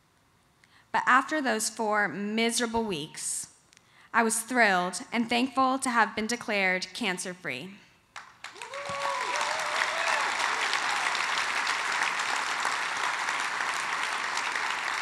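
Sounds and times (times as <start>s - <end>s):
audience applauding: 8.2s - 15.0s
whoops and cheers: 8.5s - 11.5s.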